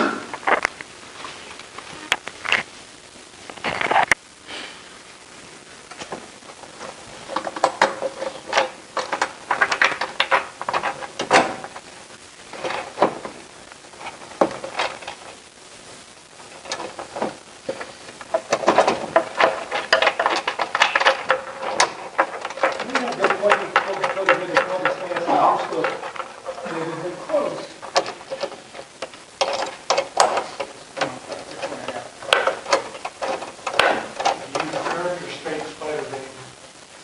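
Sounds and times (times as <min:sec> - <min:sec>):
hands handling telescope parts: 0:16.4 - 0:35.8.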